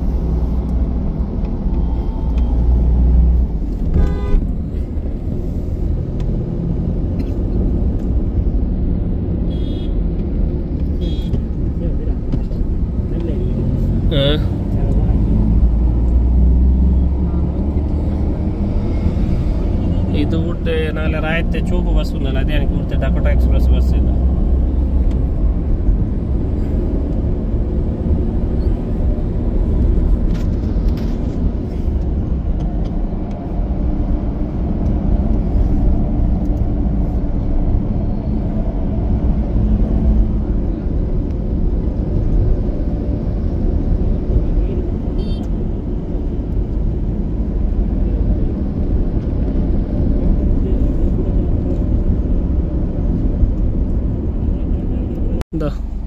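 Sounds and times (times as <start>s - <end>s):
car cabin road rumble: 0.0s - 56.0s.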